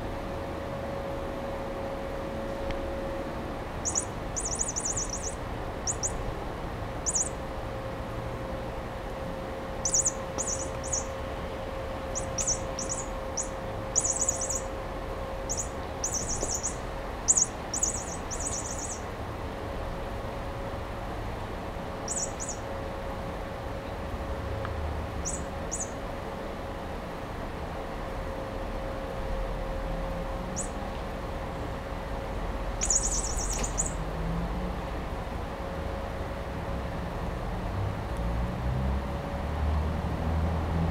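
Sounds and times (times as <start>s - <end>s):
toy mouse chirping: 3.8s - 6.2s, 7.0s - 7.4s, 9.8s - 11.2s, 12.1s - 14.8s, 15.5s - 19.1s, 22.1s - 22.6s, 25.2s - 26.0s, 30.6s - 30.8s, 32.8s - 34.0s.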